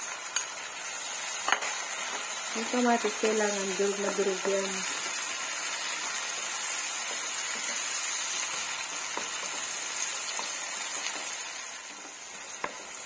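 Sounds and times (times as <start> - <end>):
vegetables sizzling in a frying pan: 0.0 - 13.0
spatula tapping a pan: 8.9 - 11.4, 12.6 - 12.9.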